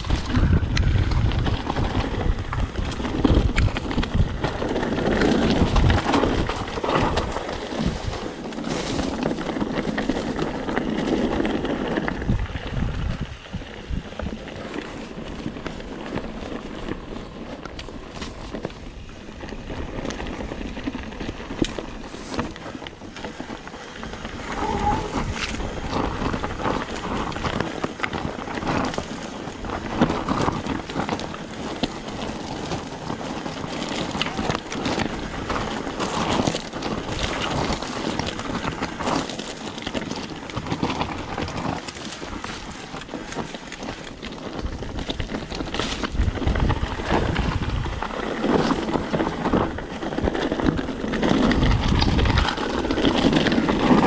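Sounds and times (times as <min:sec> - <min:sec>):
bike tyre noise: 0:00.0 - 0:54.0
wind buffeting microphone: 0:00.0 - 0:54.0
knocks and rattles over stones: 0:19.6 - 0:54.0.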